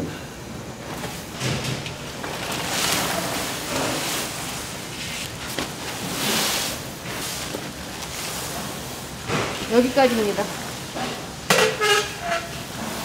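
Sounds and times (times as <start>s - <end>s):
water sloshing and splashing: 2.2s - 11.2s.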